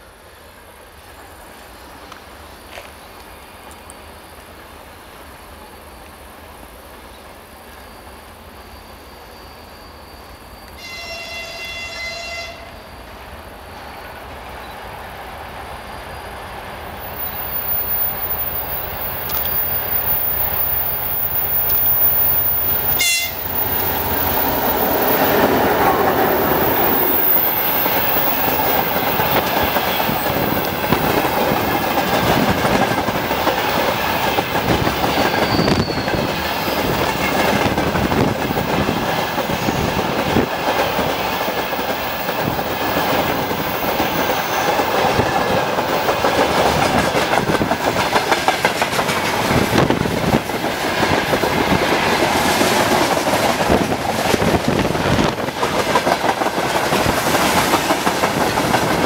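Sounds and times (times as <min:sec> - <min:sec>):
locomotive horn blast: 0:10.8 - 0:12.8, 0:22.9 - 0:23.6
wheels clacking over rail joints: 0:17.0 - 0:59.0.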